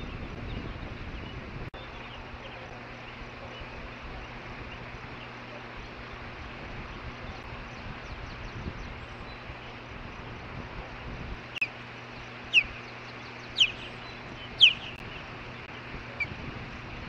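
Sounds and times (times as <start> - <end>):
distant traffic or machinery: 0.0 - 17.0
low engine hum: 0.0 - 17.0
wind: 0.0 - 17.0
faint bird chirps: 10.9 - 16.4.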